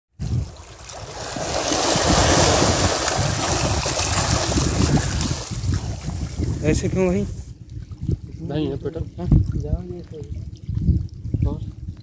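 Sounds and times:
fish thrashing and splashing: 0:00.4 - 0:06.5.

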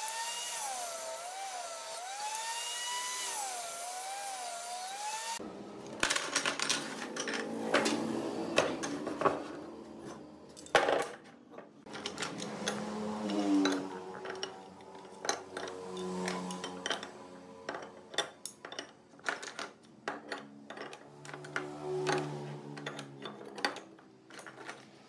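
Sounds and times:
table saw cutting a board: 0:00.0 - 0:05.5, 0:07.4 - 0:09.8, 0:12.0 - 0:18.0, 0:21.1 - 0:23.2.

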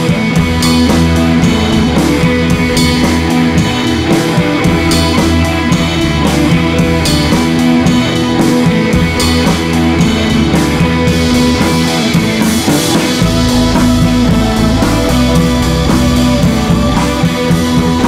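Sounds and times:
rock music: 0:00.0 - 0:18.0.

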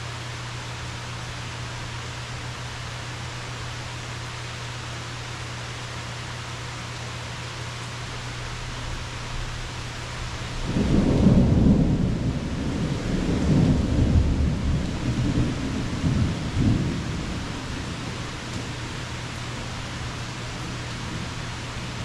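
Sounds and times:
steady rain: 0:00.0 - 0:22.0
thunder rumbling: 0:08.8 - 0:22.0.

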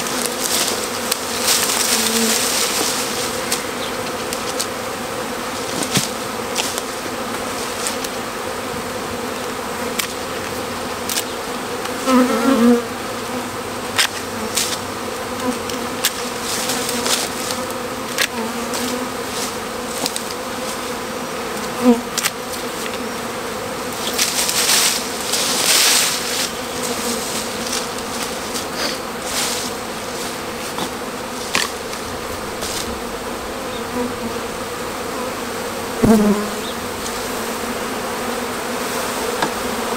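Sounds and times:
rustling leaves and twigs: 0:00.0 - 0:04.8, 0:14.0 - 0:21.0, 0:23.8 - 0:34.6
loppers cutting branches: 0:00.0 - 0:08.4, 0:09.2 - 0:38.4
bee swarm buzzing: 0:00.0 - 0:39.9.

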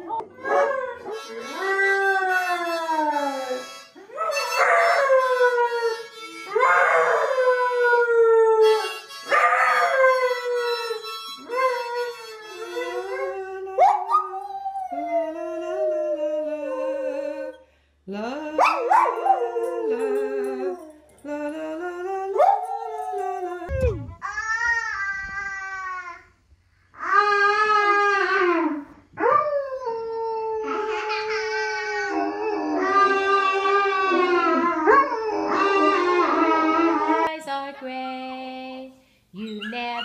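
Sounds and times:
dogs howling: 0:00.0 - 0:17.6, 0:18.6 - 0:21.3, 0:21.9 - 0:24.0, 0:29.2 - 0:37.3.

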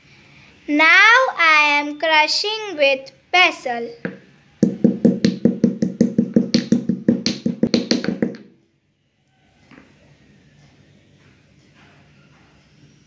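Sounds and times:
stone pestle pounding peppercorns: 0:04.1 - 0:08.5.

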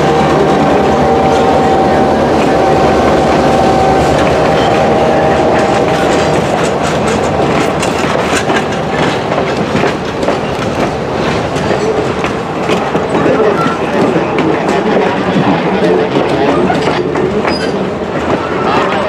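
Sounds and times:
steel wheels rumbling on rail: 0:00.0 - 0:19.0
wheels clicking over rail joints: 0:03.3 - 0:19.0.

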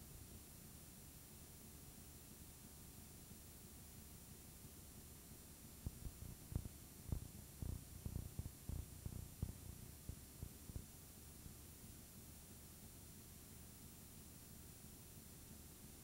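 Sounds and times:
tape hiss: 0:00.0 - 0:16.0
soft low thumps: 0:05.8 - 0:10.9.

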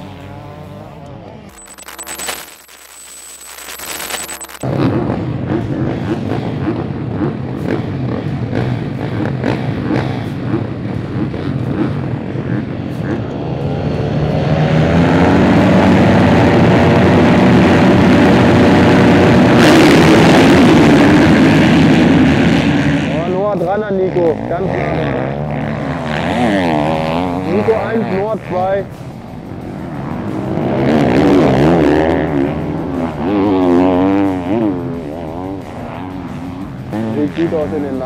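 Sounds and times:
motocross engines revving: 0:00.0 - 0:38.0.

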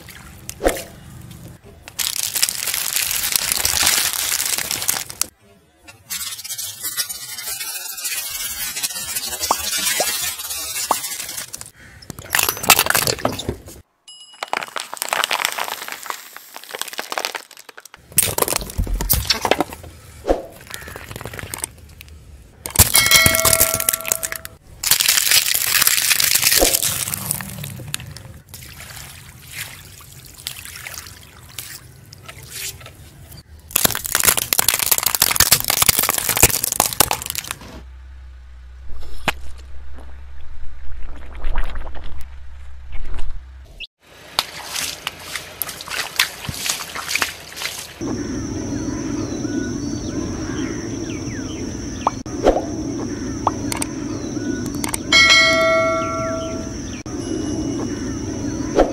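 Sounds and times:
crackling and crunching: 0:01.9 - 0:05.3, 0:14.4 - 0:19.8, 0:20.6 - 0:28.3, 0:33.7 - 0:37.7
car tyres crushing objects: 0:14.4 - 0:19.9, 0:33.7 - 0:37.8.

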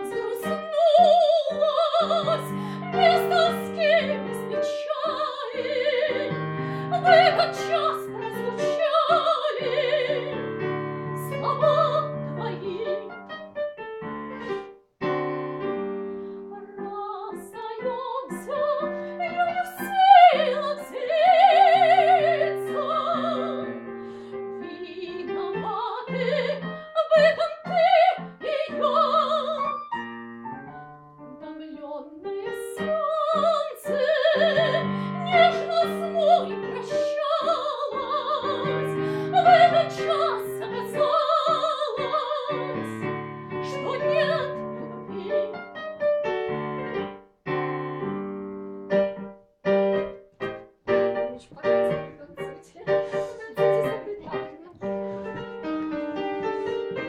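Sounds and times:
woman singing operatically: 0:00.0 - 0:10.5, 0:11.1 - 0:13.2, 0:16.5 - 0:23.9, 0:24.6 - 0:29.8, 0:31.3 - 0:45.6, 0:51.3 - 0:55.4
piano chords: 0:00.0 - 0:57.0.

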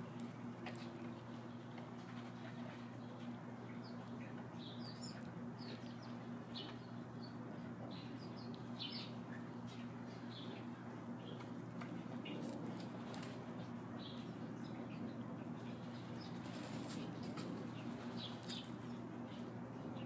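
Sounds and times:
small birds chirping: 0:00.1 - 0:20.0.

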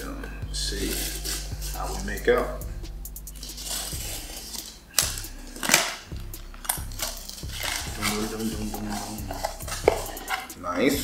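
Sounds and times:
packing tape ripping: 0:03.4 - 0:10.5.

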